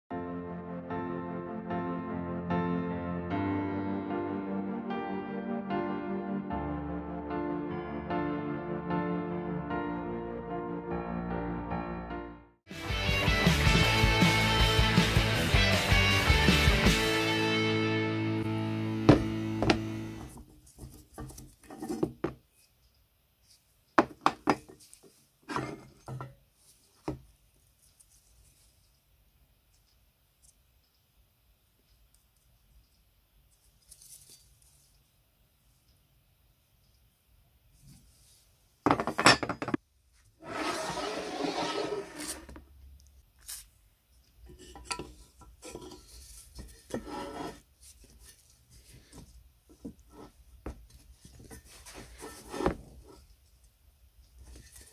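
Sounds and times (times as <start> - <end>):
cast iron parts knocking on wood: 19.1 - 19.8, 38.9 - 39.8
rough metal scraping: 40.4 - 42.6, 44.5 - 47.7.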